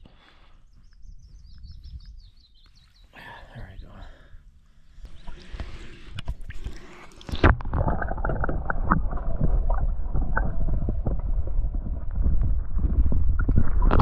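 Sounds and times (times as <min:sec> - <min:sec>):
muffled rumbling on microphone: 0:03.2 - 0:14.0.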